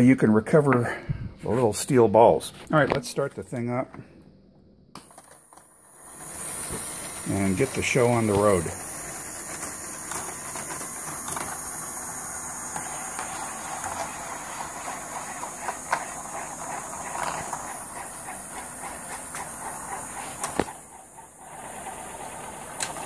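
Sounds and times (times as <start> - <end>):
steel balls rattling on plastic track: 6.2 - 23.0.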